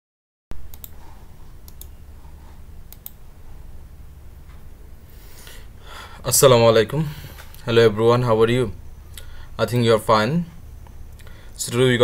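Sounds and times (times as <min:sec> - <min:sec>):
low room hum: 0:00.6 - 0:12.0
computer mouse clicks: 0:00.7 - 0:01.9, 0:02.9 - 0:03.2.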